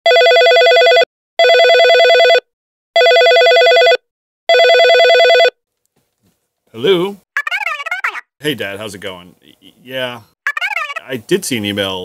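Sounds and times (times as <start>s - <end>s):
telephone electronic ring: 0.1s - 5.6s.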